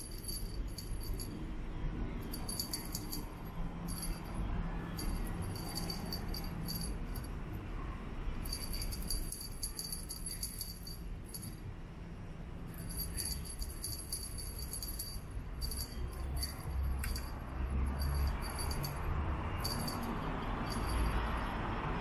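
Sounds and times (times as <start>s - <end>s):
small bell jingling: 0.0s - 1.5s, 2.2s - 7.4s, 8.4s - 11.7s, 12.7s - 22.0s.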